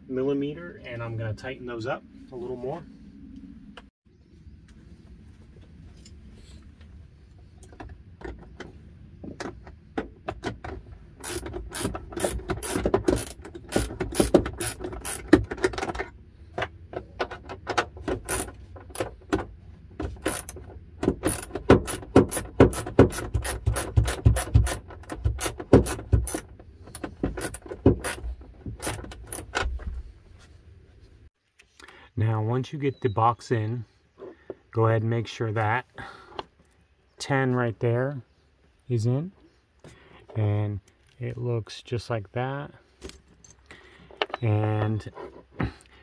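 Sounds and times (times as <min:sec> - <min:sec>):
ratchet wrench clicking: 0:11.2 - 0:15.3, 0:20.2 - 0:20.6, 0:21.2 - 0:24.8.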